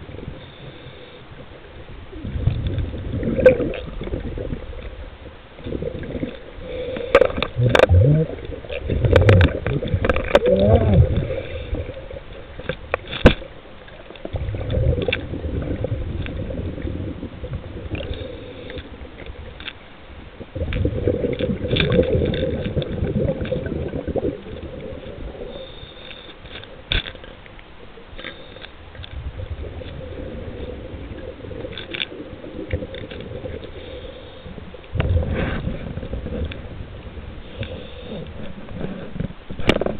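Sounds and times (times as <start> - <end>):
diver breathing through regulator: 6.6 - 8.4, 18.0 - 18.9, 25.4 - 26.7, 33.6 - 34.6, 37.4 - 39.2.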